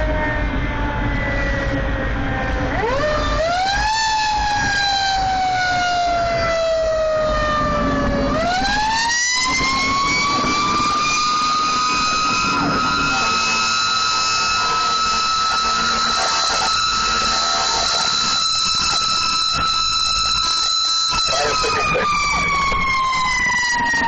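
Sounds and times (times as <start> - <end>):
fire truck siren wailing: 0.0 - 24.0
truck engine rumble: 0.0 - 24.0.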